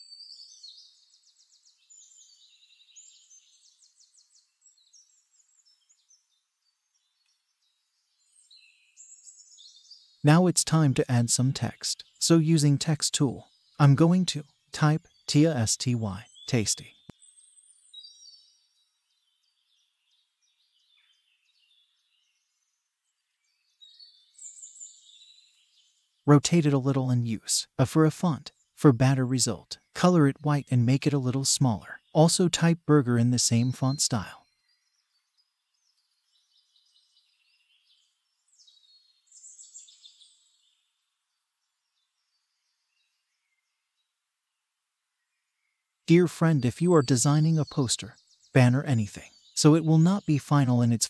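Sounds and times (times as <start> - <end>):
faint high-pitched chirps: 0.0 - 2.2.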